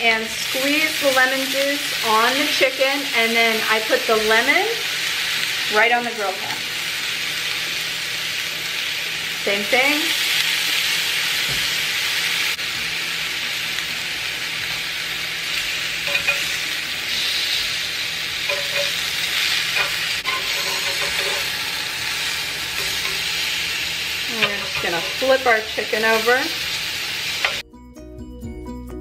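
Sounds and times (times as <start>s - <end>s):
chicken sizzling on a grill pan: 0.0s - 27.6s
metal tongs clicking: 16.0s - 16.5s, 18.4s - 19.0s, 19.7s - 21.5s.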